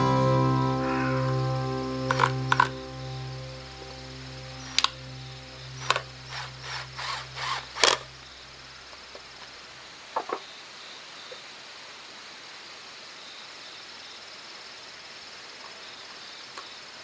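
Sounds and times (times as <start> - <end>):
quiet background music: 0.0 - 9.0
insects chirping: 0.0 - 17.0
sharp clicks: 5.8 - 8.1.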